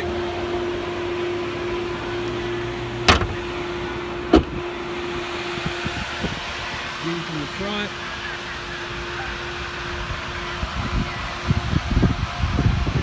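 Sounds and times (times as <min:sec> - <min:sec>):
car hood shutting: 0:02.2 - 0:03.5, 0:04.3 - 0:04.6.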